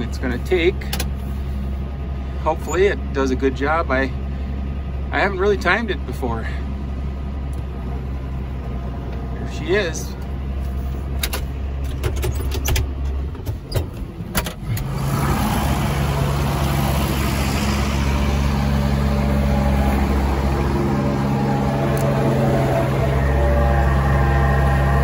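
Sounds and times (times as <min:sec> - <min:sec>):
tractor engine running: 0:00.0 - 0:25.0
sharp clicks and knocks: 0:11.2 - 0:14.9.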